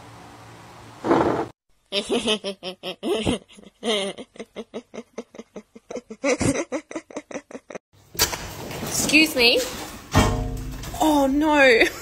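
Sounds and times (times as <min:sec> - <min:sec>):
person laughing: 0:02.0 - 0:07.8.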